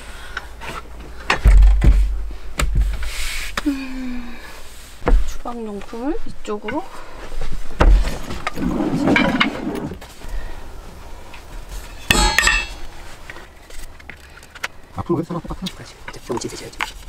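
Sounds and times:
wooden poles knocking together: 0.6s - 3.7s, 7.8s - 9.8s, 11.9s - 12.9s
ringing wooden clack: 12.0s - 12.8s.

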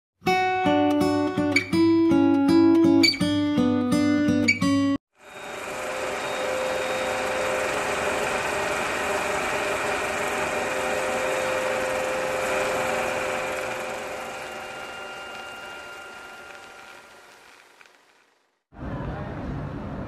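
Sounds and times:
film projector whirring: 5.1s - 18.6s.

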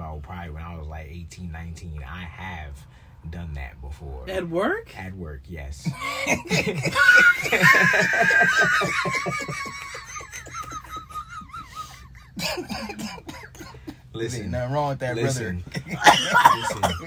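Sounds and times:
high-pitched laugh: 5.9s - 13.8s
people laughing: 5.9s - 14.0s, 15.5s - 17.0s.

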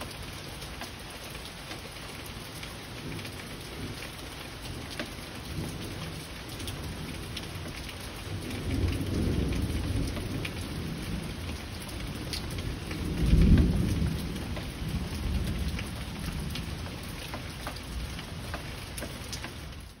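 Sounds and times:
heavy rain falling: 0.0s - 20.0s
sharp raindrop ticks: 0.0s - 20.0s
rolling thunder: 8.2s - 16.8s.

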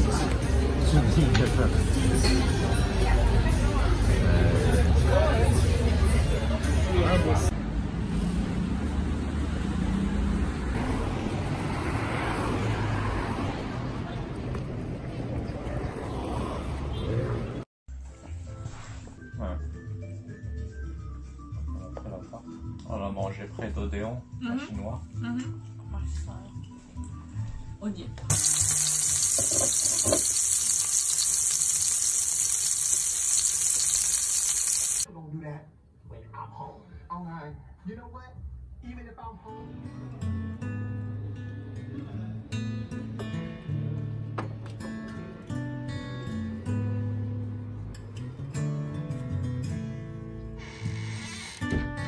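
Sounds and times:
street traffic noise: 0.0s - 17.7s
car passing: 7.8s - 17.6s
foie gras sizzling in a pan: 28.3s - 35.1s.

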